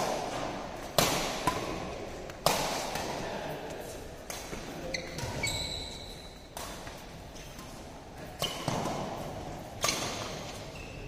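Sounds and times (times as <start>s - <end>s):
rackets striking shuttlecock: 0.0s - 10.7s
shoes squeaking on court: 3.8s - 11.0s.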